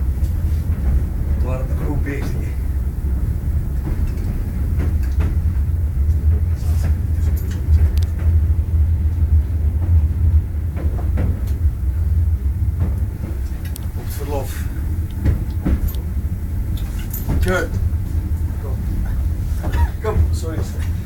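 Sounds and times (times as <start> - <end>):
railway carriage rumbling on rails: 0.0 - 21.0
knocks and rattles: 3.8 - 11.8, 12.6 - 21.0.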